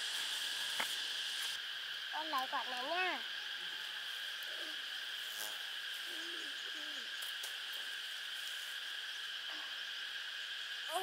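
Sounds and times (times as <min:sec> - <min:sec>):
faint low wavering calls: 0:00.0 - 0:11.0
high-pitched insect chorus: 0:00.0 - 0:11.0.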